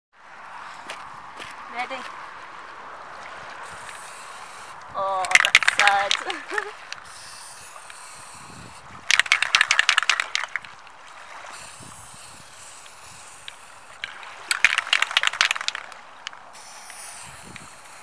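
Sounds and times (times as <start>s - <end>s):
spray can rattling when shaken: 3.6s - 10.8s, 11.5s - 18.0s.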